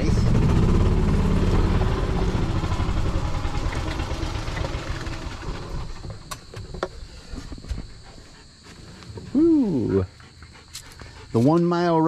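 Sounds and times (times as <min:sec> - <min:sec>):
golf cart motor running: 0:00.0 - 0:07.6.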